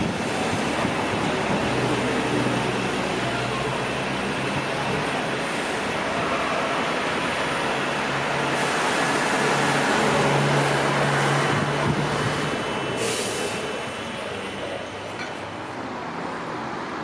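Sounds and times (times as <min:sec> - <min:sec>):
bus engine humming: 0:00.0 - 0:17.0
traffic noise: 0:00.0 - 0:17.0
hiss of air: 0:12.2 - 0:13.8.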